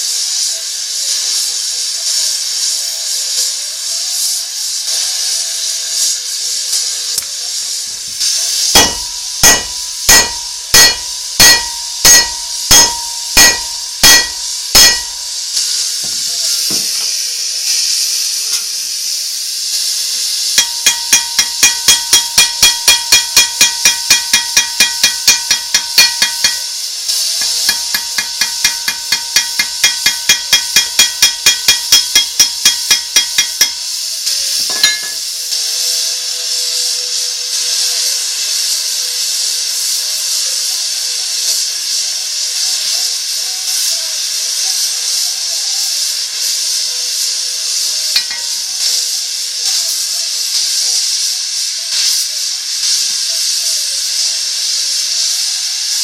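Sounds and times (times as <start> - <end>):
steady hiss: 0.0 - 56.0
hammer striking ringing metal: 8.8 - 15.4, 20.6 - 33.9, 34.7 - 35.2, 48.2 - 48.6.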